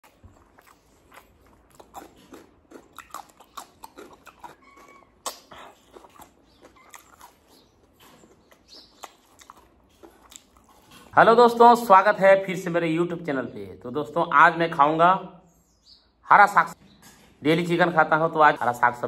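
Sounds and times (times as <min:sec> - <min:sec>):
wet chewing and lip smacks: 0:00.0 - 0:11.2.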